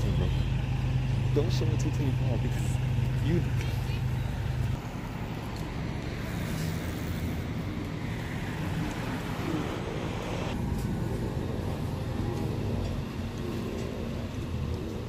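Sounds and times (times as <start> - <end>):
bus engine running: 0.0 - 15.0
street traffic noise: 0.0 - 15.0.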